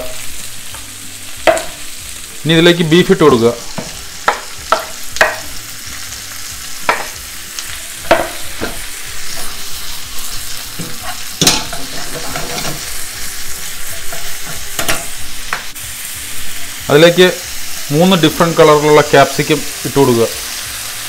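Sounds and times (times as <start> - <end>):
meat and onions sizzling in oil: 0.0 - 21.0
spatula scraping and knocking a pan: 1.4 - 1.8, 3.7 - 5.6, 6.8 - 7.2, 7.9 - 9.6, 10.7 - 13.1, 13.7 - 15.7.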